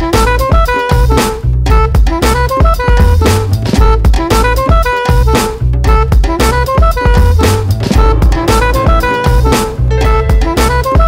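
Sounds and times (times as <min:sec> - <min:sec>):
drum kit beat: 0:02.0 - 0:11.0
deep bass line: 0:07.2 - 0:11.0
melody of held notes: 0:07.9 - 0:11.0.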